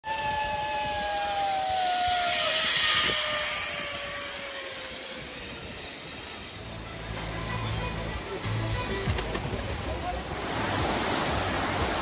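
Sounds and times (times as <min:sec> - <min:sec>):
aircraft passing by: 0:00.1 - 0:11.6.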